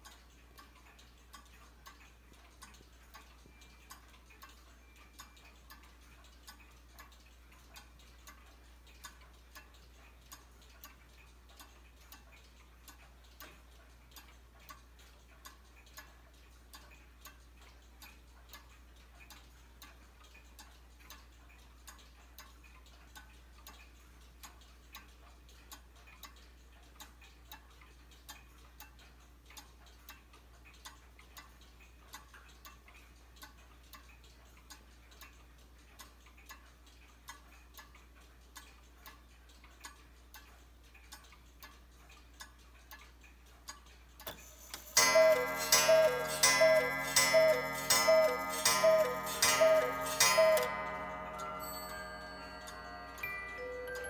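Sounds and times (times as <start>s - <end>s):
clock ticking: 0.0s - 54.0s.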